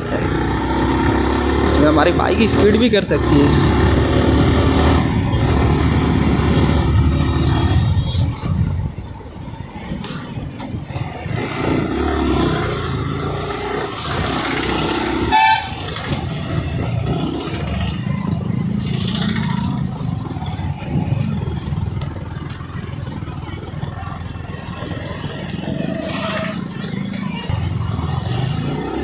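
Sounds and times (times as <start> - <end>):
road noise: 0.0 - 29.0
motorcycle engine running: 10.0 - 29.0
vehicle horn toot: 15.2 - 15.9.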